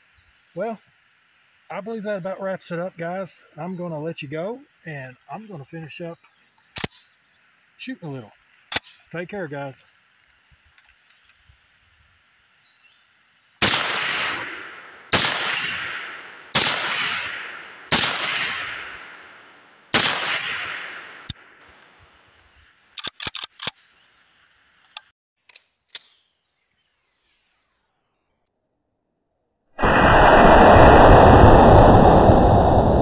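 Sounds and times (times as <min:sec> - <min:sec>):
rifle gunshots with echo: 0:13.6 - 0:21.3.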